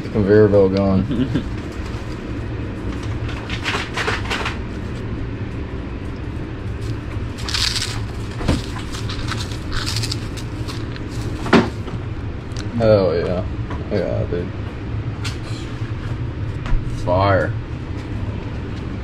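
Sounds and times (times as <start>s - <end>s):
low hum: 0.0s - 19.0s
breadcrumbs crunching and rustling: 6.6s - 11.8s.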